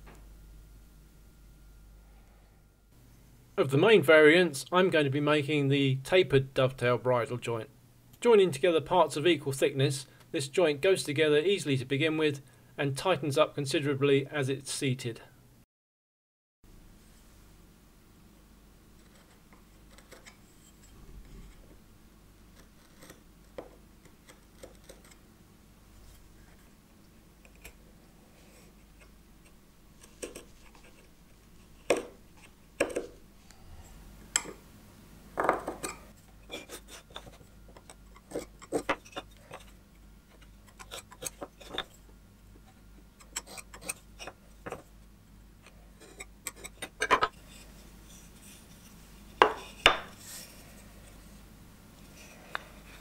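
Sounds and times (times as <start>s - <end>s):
knife scoring wood: 19.0s - 21.6s, 22.6s - 23.2s, 24.0s - 25.2s, 28.5s - 33.2s, 35.6s - 41.9s, 43.2s - 44.8s, 46.0s - 50.5s
tools set down on workbench: 35.4s - 35.8s.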